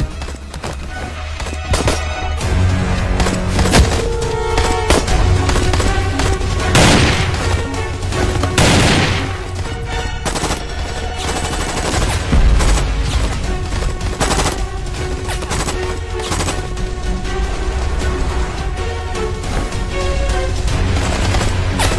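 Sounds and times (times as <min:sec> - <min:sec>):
driving film score: 0:00.0 - 0:21.9
rapid gunfire: 0:03.0 - 0:16.9, 0:20.7 - 0:21.9.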